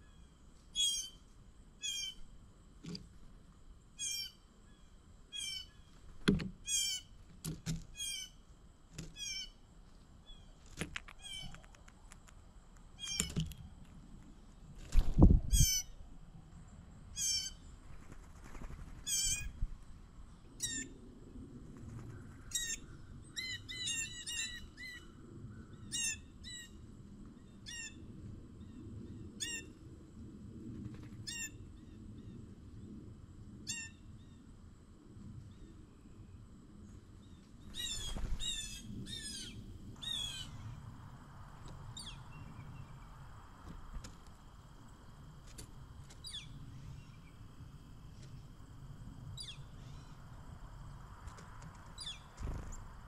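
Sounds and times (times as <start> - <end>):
songbirds calling: 1.8 - 3.2, 3.8 - 8.4, 9.0 - 9.6, 10.2 - 12.3, 12.9 - 13.8, 36.8 - 44.0, 46.1 - 47.5, 49.3 - 50.5, 51.9 - 53.0.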